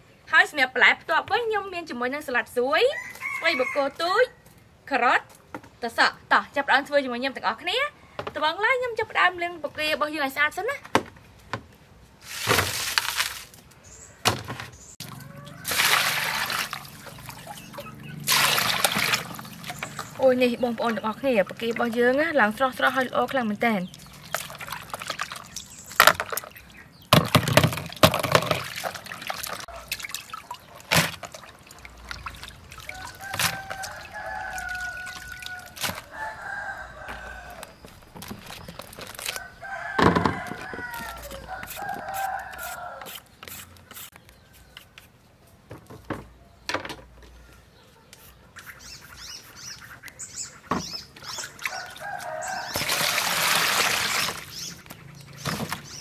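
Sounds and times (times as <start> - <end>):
rooster crowing: 2.9 - 4.4, 15.0 - 16.9, 32.8 - 37.8, 39.3 - 43.2, 51.7 - 53.4
water splashing and sloshing: 12.2 - 13.7, 14.3 - 42.9, 48.7 - 56.0
sharp splashes and knocks: 12.3 - 13.6, 14.2 - 22.2, 22.8 - 36.2, 50.7 - 56.0
water poured into plastic basin: 12.3 - 13.6, 15.0 - 20.2, 23.9 - 26.5, 27.2 - 36.1, 51.6 - 54.7.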